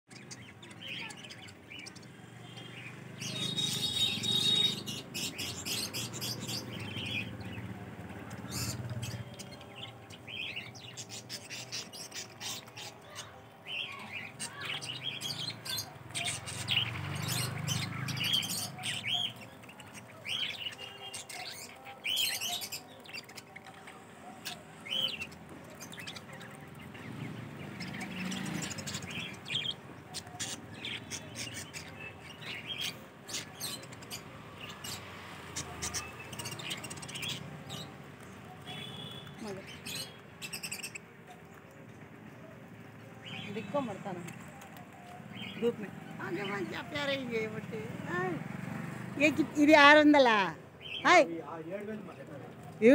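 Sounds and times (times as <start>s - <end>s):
budgerigars chirping: 0.1s - 41.1s.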